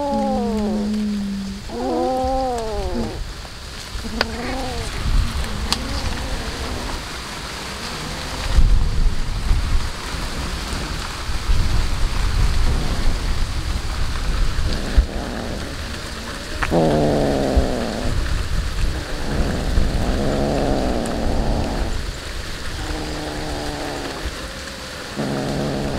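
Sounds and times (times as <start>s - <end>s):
cat call: 0.0s - 3.2s, 4.0s - 7.0s, 14.7s - 18.3s, 22.8s - 25.9s
low rumble: 0.0s - 24.5s
cats chewing raw fish: 4.0s - 7.0s, 14.7s - 18.3s, 22.8s - 25.9s.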